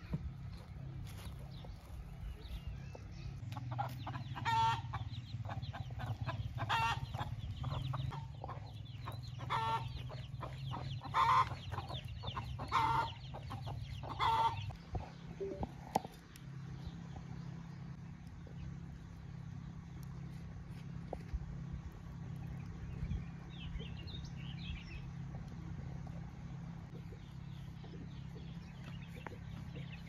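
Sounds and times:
chicks peeping: 0:00.0 - 0:16.2, 0:26.9 - 0:30.0
hen calling loudly: 0:09.4 - 0:13.3.

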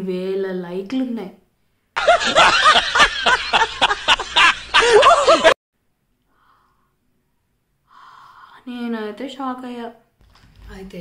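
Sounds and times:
monkey laughing: 0:02.0 - 0:05.6.

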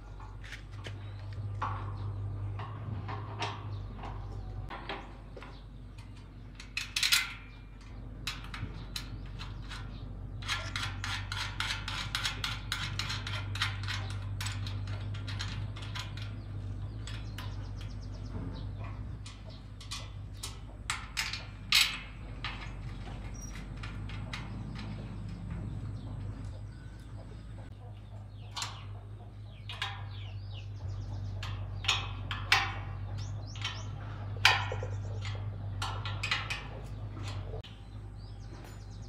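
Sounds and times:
steady low hum: 0:00.0 - 0:39.0
metal tools clinking: 0:18.8 - 0:27.2.

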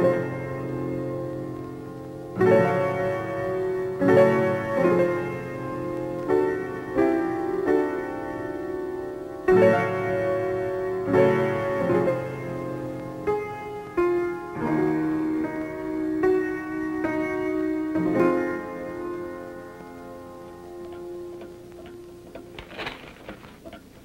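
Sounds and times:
slow piano chords: 0:00.0 - 0:24.0.

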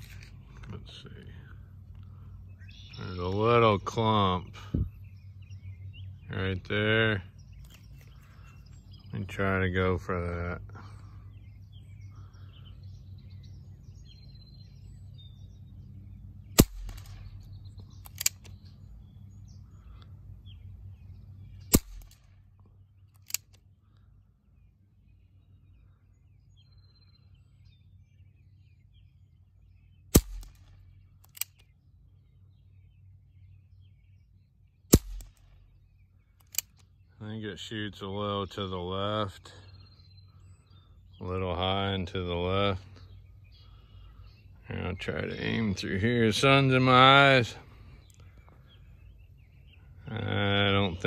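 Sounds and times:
faint birds chirping: 0:00.0 - 0:51.0
low steady rumble: 0:00.0 - 0:51.0
air pistol shots: 0:16.5 - 0:18.6, 0:21.6 - 0:22.3, 0:30.1 - 0:31.6, 0:34.9 - 0:35.7.

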